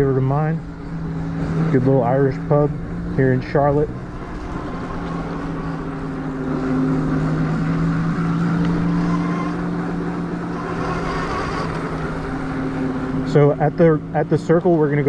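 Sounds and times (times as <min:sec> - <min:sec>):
electric moped motor hum: 0:00.0 - 0:15.0
road and wind noise: 0:00.0 - 0:15.0.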